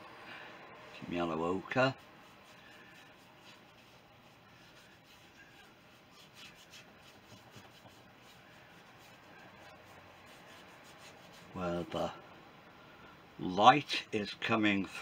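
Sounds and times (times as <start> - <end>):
paintbrush brushing on canvas: 1.0 - 12.0.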